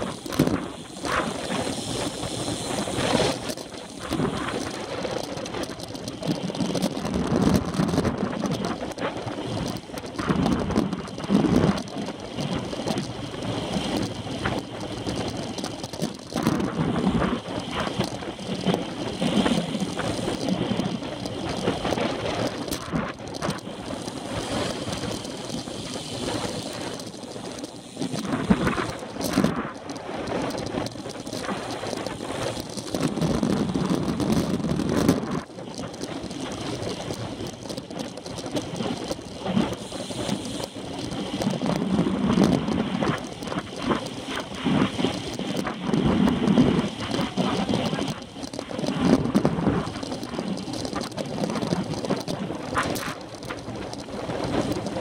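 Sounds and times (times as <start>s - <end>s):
bicycle tyres hissing on asphalt: 0.0s - 55.0s
wind buffeting microphone: 0.0s - 55.0s.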